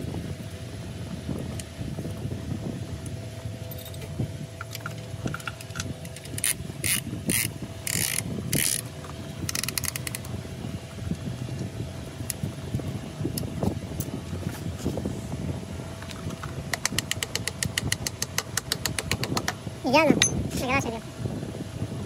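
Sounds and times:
steady low hum: 0.0s - 22.0s
metal ratchet clicking: 4.7s - 8.8s, 9.5s - 10.2s.

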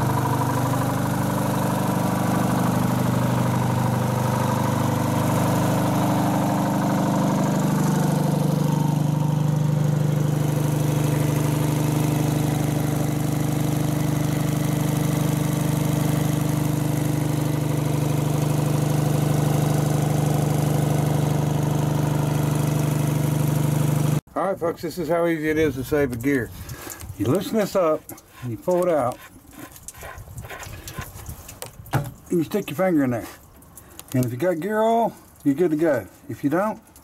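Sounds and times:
crane engine idling: 0.0s - 24.2s.

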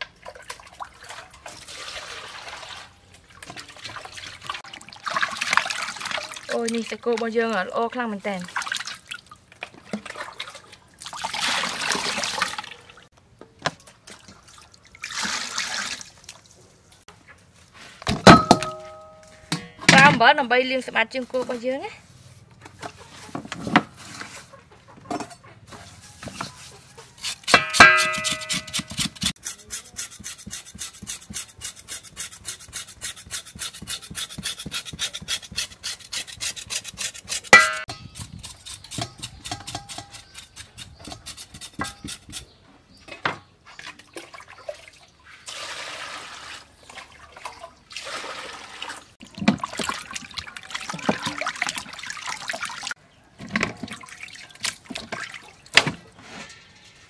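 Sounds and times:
water splashing in metal bowl: 0.0s - 7.6s, 8.4s - 12.9s, 43.7s - 53.0s, 53.7s - 55.8s
sharp ringing knock: 27.6s - 28.7s.

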